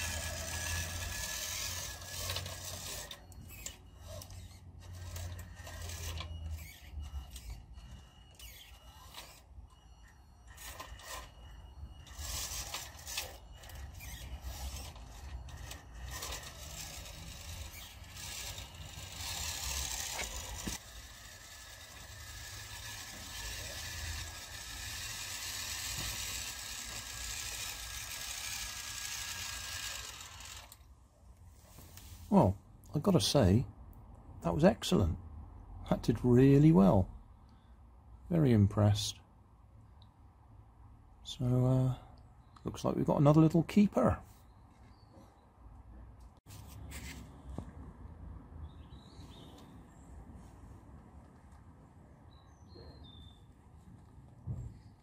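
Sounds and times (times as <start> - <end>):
electric motor and gearbox whining: 0.0 - 31.0.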